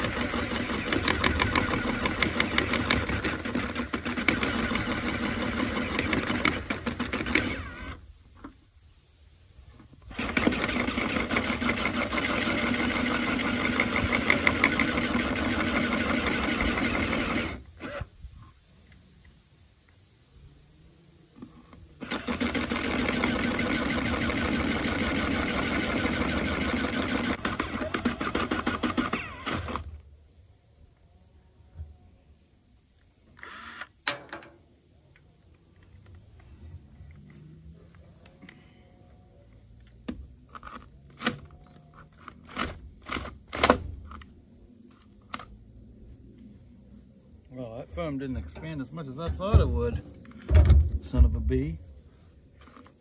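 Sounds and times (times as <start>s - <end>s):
cordless drill cutting aluminum: 0.0s - 8.0s, 10.1s - 18.1s, 22.0s - 30.0s, 33.4s - 34.3s
sharp knocks and clicks: 34.0s - 34.6s.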